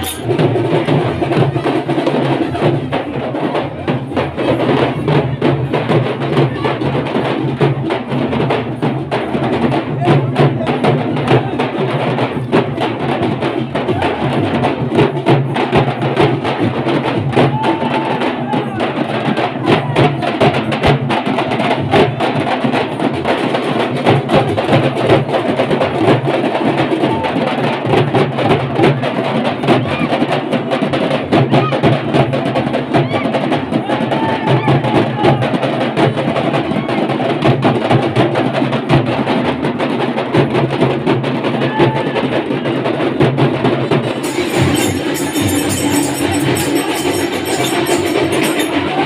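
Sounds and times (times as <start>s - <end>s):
crowd voices: 0.0s - 7.8s, 16.6s - 20.7s, 43.8s - 49.0s
frame drums beaten with sticks: 0.0s - 49.0s.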